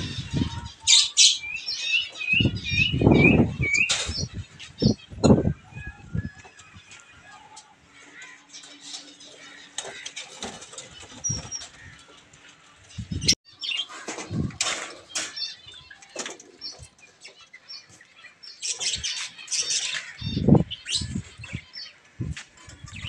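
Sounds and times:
birds fluttering wings: 8.0s - 17.0s.

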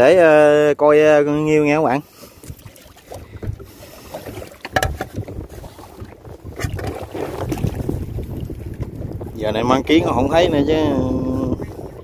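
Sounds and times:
wind rumble on microphone: 2.4s - 12.0s
knocks: 4.7s - 5.2s.

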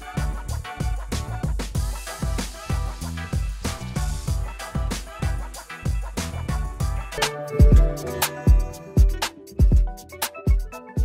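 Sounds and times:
music with deep bass beat: 0.0s - 11.0s.

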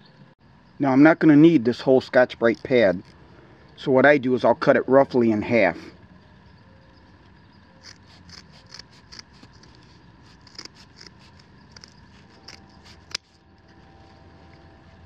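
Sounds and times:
scissors snipping scour pad: 7.8s - 13.8s.

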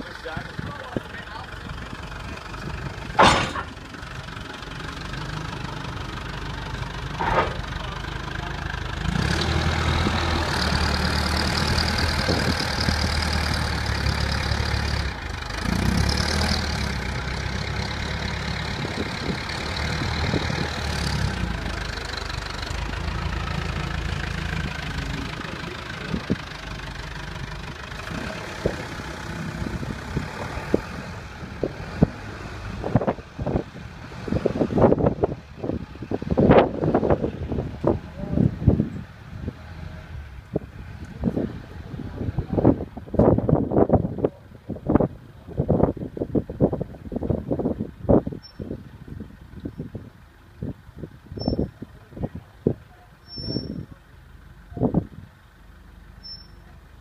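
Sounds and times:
forklift engine revving: 0.4s - 57.0s
knocks and clunks on trailer: 2.8s - 4.0s, 7.1s - 7.9s
sharp bang: 3.2s - 3.8s.

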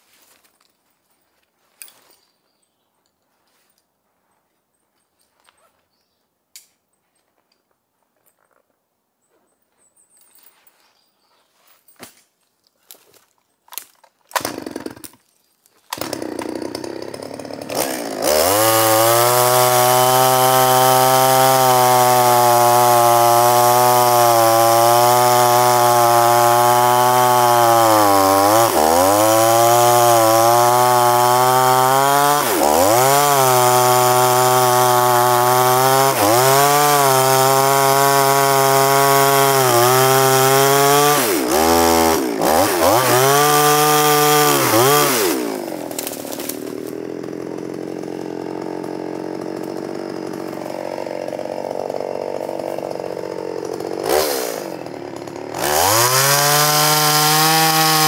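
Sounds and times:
chainsaw engine revving: 14.3s - 15.2s, 15.9s - 58.0s.

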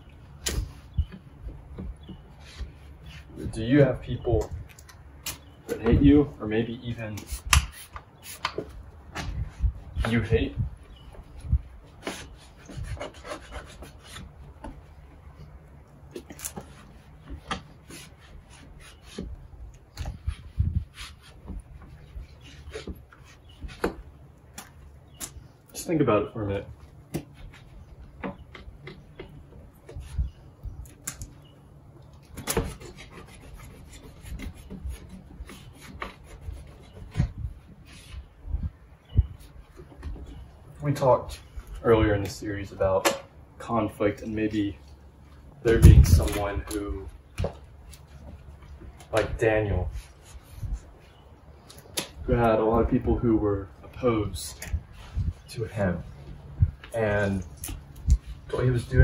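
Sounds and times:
rag rubbing on glass: 16.2s - 24.0s.

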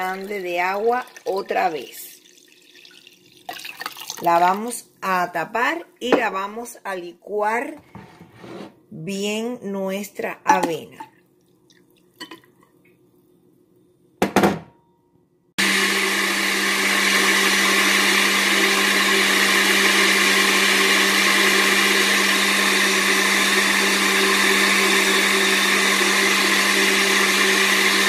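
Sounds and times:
blender running: 15.6s - 28.0s.

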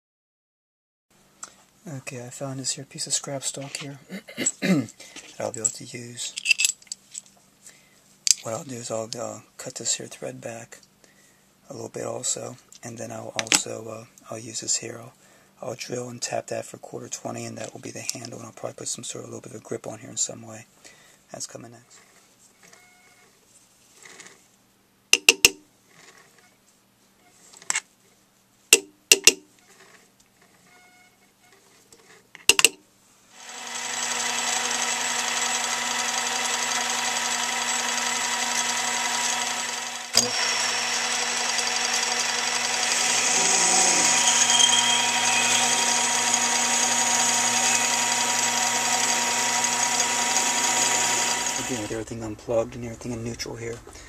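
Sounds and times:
metal clicks and knocks: 28.8s - 29.4s, 32.4s - 32.8s
drill boring into metal: 33.4s - 52.1s
metal lathe whining: 33.4s - 52.1s.

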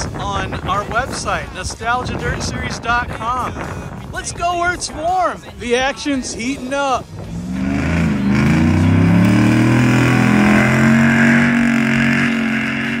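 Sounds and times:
truck engine accelerating: 7.0s - 13.0s.

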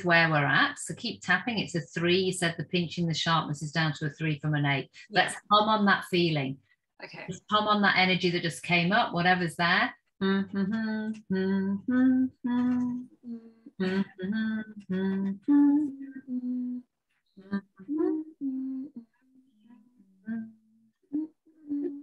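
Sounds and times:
woman humming: 10.2s - 19.1s, 20.2s - 22.0s.

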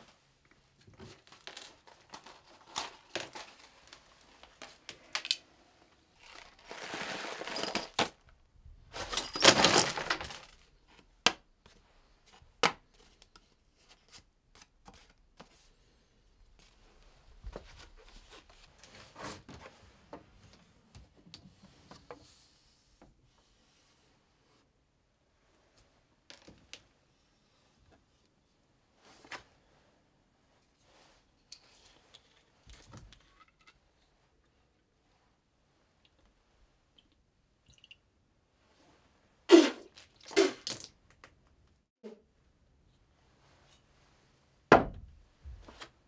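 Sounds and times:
rustling scraping on floor: 6.2s - 8.0s.

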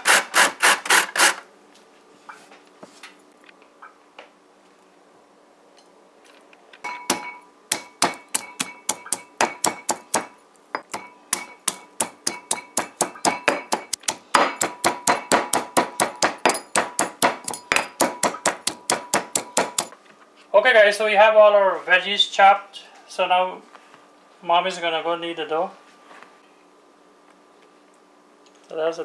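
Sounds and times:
pestle pounding in stone mortar: 6.9s - 19.9s.

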